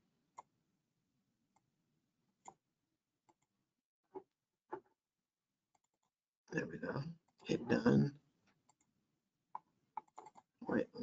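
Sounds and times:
computer mouse clicks: 9.6s - 10.5s.

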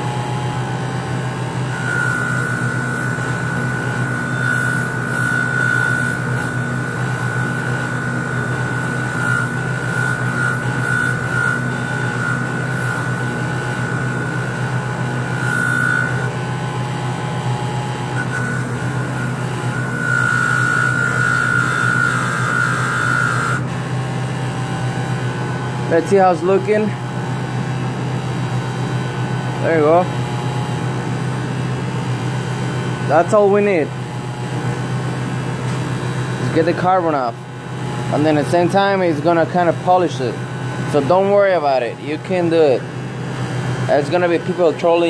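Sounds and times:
bench grinder motor hum: 0.0s - 45.0s
high grinder whine: 0.0s - 45.0s.

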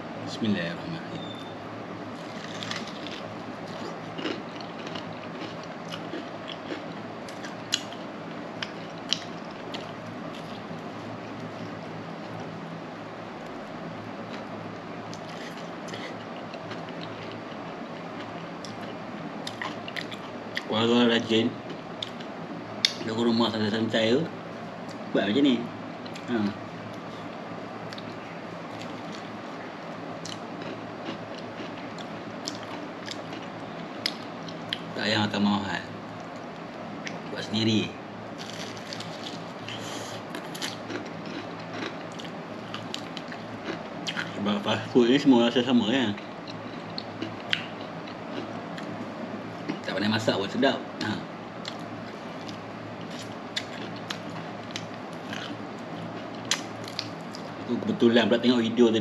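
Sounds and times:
biting and chewing: 2.1s - 12.5s, 15.1s - 20.7s, 27.9s - 29.4s, 30.2s - 34.9s, 38.4s - 44.4s, 51.6s - 57.6s.

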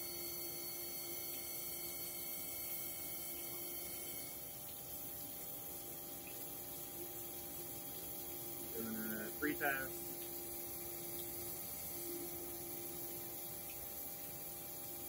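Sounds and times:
coolant splashing: 1.0s - 15.0s
grinding machine hum: 6.9s - 15.0s.

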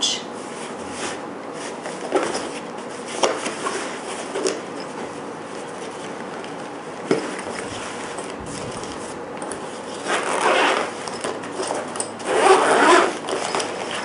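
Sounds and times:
nylon fabric rustling: 7.6s - 11.0s, 11.7s - 14.0s.

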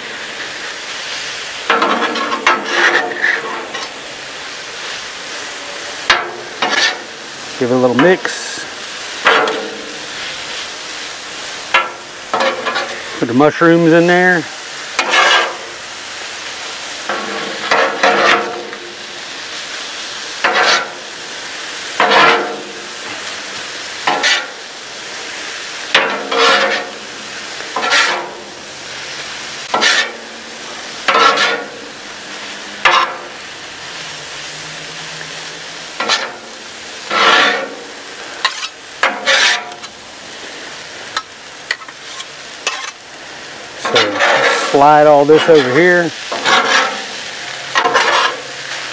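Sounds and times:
food sizzling on griddle: 0.0s - 48.9s
metal spatulas scraping and clacking: 1.7s - 3.9s, 6.1s - 7.1s, 11.7s - 13.0s, 15.0s - 15.6s, 17.1s - 18.8s, 20.4s - 21.0s, 22.0s - 22.6s, 24.1s - 24.5s, 25.9s - 27.0s, 27.8s - 28.4s, 29.7s - 30.2s, 31.1s - 31.8s, 32.8s - 33.2s, 36.0s - 36.5s, 37.1s - 37.8s, 38.4s - 40.0s, 41.2s - 43.0s, 43.8s - 48.5s.

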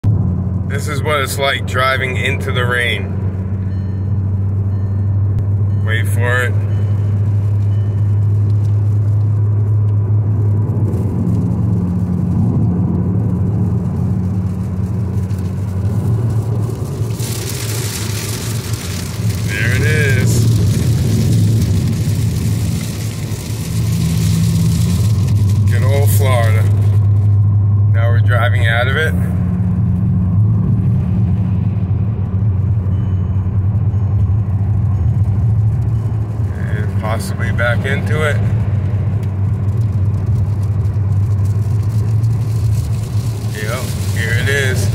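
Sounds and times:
car driving inside cabin: 0.0s - 44.9s
rain hitting windshield: 5.5s - 30.1s, 30.7s - 44.9s
tyres hissing on wet road: 14.1s - 27.0s, 40.0s - 44.9s.

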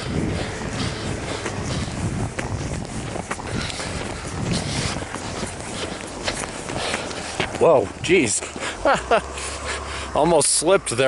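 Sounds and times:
low rumble: 0.0s - 8.1s
footsteps crunching in snow: 0.0s - 11.0s.

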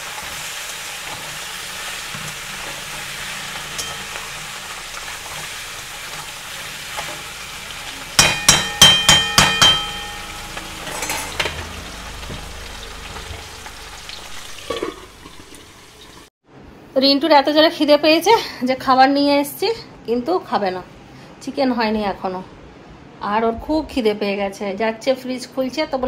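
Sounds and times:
food sizzling in oil: 0.0s - 16.3s
metal utensil clanking on pan: 3.7s - 4.4s, 8.1s - 12.6s
utensil scraping pan: 9.6s - 12.4s.

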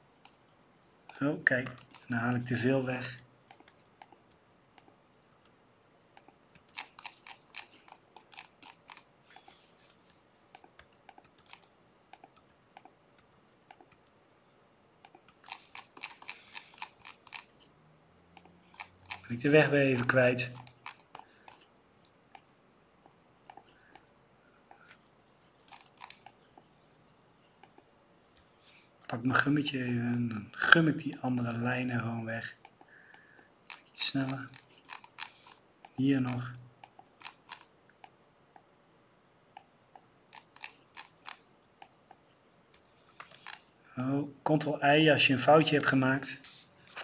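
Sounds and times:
computer mouse clicks: 1.1s - 2.1s, 3.5s - 5.6s, 6.2s - 14.2s, 15.0s - 17.7s, 18.3s - 21.7s, 22.3s - 24.1s, 25.6s - 26.7s, 27.6s - 28.5s, 32.6s - 38.7s, 39.5s - 43.7s.

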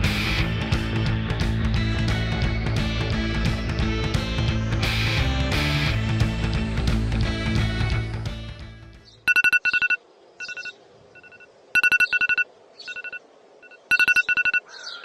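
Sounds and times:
rock music: 0.0s - 9.0s
faint birdsong: 8.9s - 15.0s
electronic telephone ringtone: 9.3s - 14.7s.

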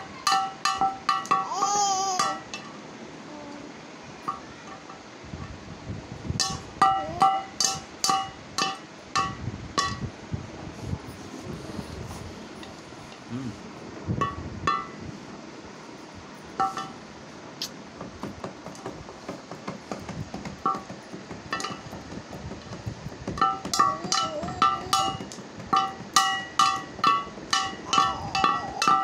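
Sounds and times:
sticks striking metal plate: 0.2s - 2.7s, 6.4s - 10.0s, 14.2s - 15.0s, 16.6s - 17.0s, 21.5s - 21.9s, 23.4s - 29.0s.

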